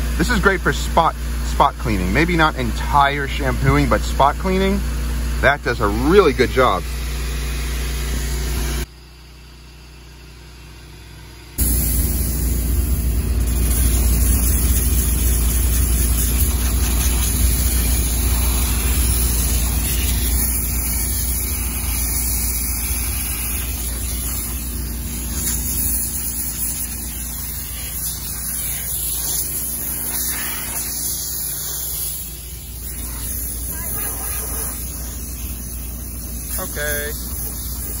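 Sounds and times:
steam cleaner machine hum: 0.0s - 8.9s, 11.6s - 38.0s
steam hissing from nozzle: 11.6s - 38.0s.

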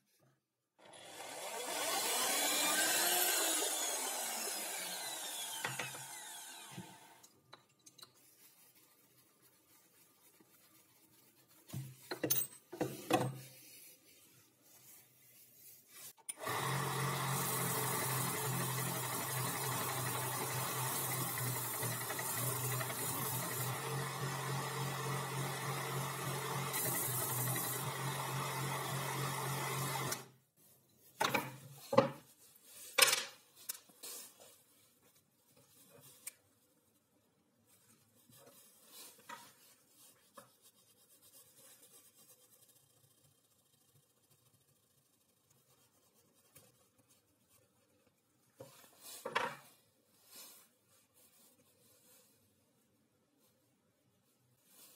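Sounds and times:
belt sander sanding wood: 1.8s - 7.2s, 16.4s - 30.2s.

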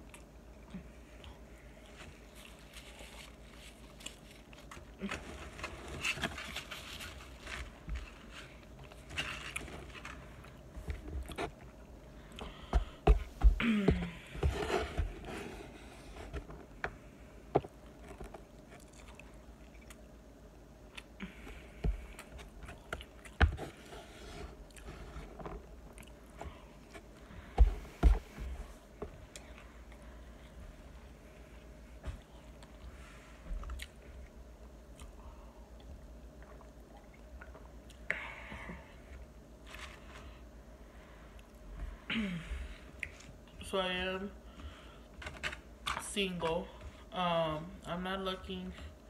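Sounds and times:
chewing and mouth sounds: 17.8s - 20.1s, 25.9s - 26.4s.

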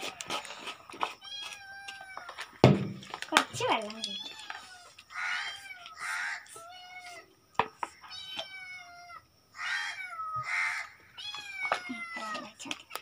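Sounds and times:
cat meowing: 3.9s - 7.3s, 8.0s - 12.6s.

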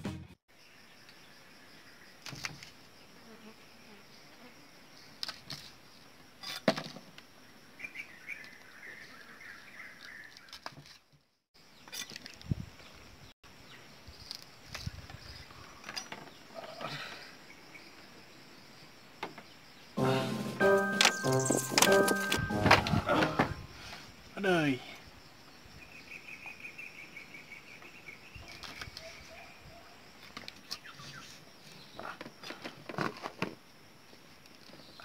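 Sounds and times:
insects calling: 0.5s - 10.3s, 11.6s - 20.0s, 23.3s - 33.1s.

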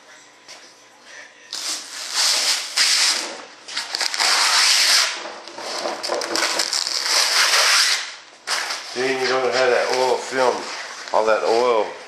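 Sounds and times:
fabric ripping off hardened resin: 1.6s - 5.2s, 6.4s - 8.8s.

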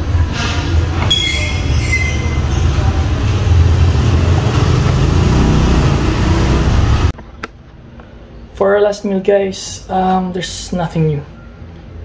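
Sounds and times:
loud low rumble: 1.6s - 7.1s.

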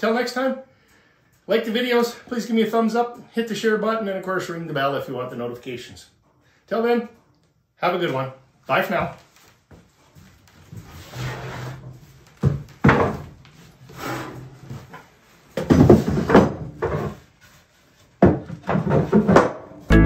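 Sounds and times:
wooden boxes knocking and scraping: 12.4s - 13.4s, 15.6s - 17.2s, 18.2s - 19.8s.

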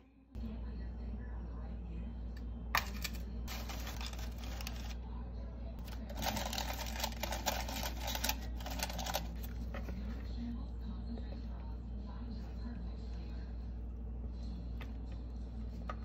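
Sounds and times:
low steady hum: 0.0s - 16.0s
parchment paper crinkling: 2.8s - 5.0s, 5.8s - 10.3s.

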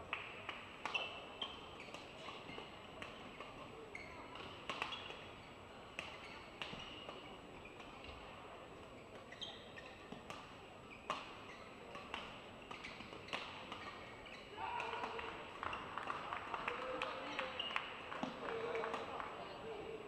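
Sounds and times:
rackets hitting shuttlecock: 0.3s - 3.6s, 4.3s - 5.2s, 9.1s - 16.2s, 18.2s - 19.1s
shoes squeaking on court: 0.8s - 14.6s.

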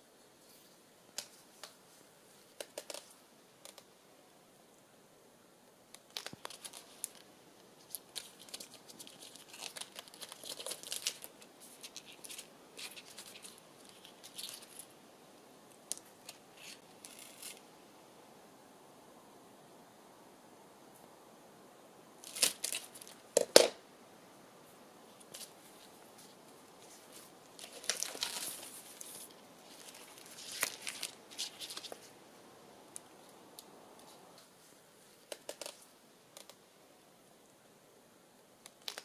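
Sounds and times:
plant stems rustling on tabletop: 6.1s - 14.9s, 25.1s - 32.2s.

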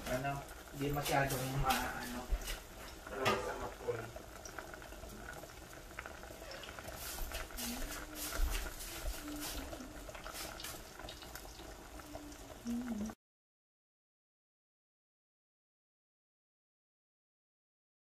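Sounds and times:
water boiling and bubbling: 0.0s - 13.2s.

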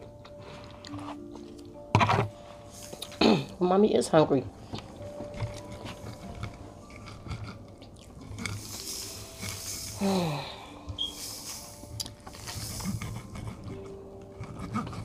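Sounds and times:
breathy noise: 5.3s - 15.0s.

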